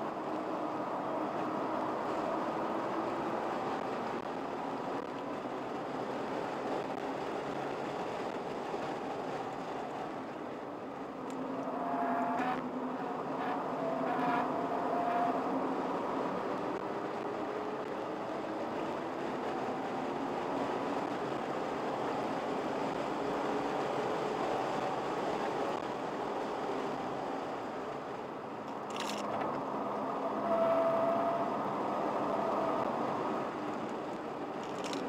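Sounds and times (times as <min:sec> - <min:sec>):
car engine: 0:00.0 - 0:35.0
tyre and road noise: 0:00.0 - 0:35.0.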